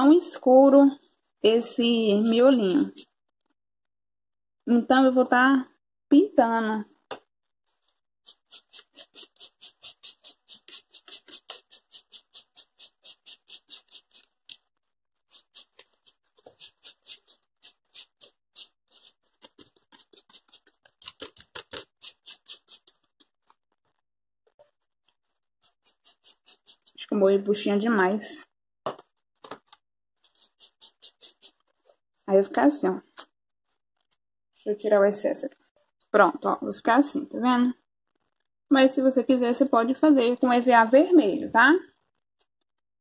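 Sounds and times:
sponge scratching on foam: 0:01.7 - 0:03.2, 0:08.2 - 0:14.3, 0:15.3 - 0:23.3, 0:25.6 - 0:27.1, 0:30.2 - 0:32.0.

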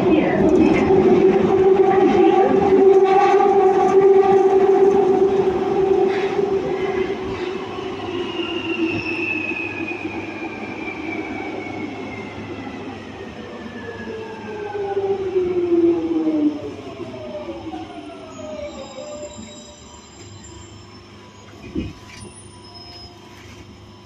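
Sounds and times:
train running rumble: 0:00.0 - 0:10.2, 0:21.1 - 0:24.0.

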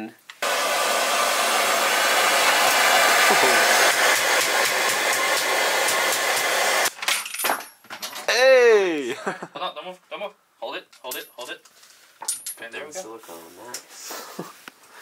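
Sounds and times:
gas blowtorch hissing: 0:00.4 - 0:06.9.

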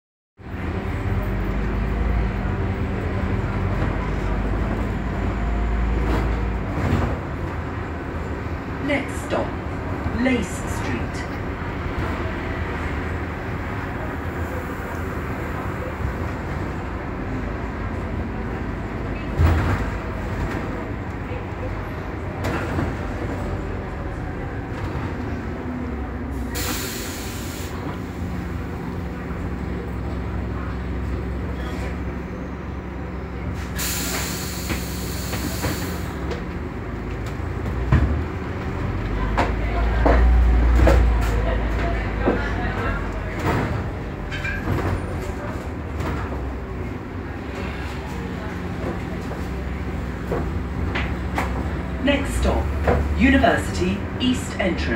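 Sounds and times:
bus cabin noise: 0:00.4 - 0:54.9
bus engine drone: 0:00.4 - 0:54.9
short air hiss: 0:33.8 - 0:36.0.

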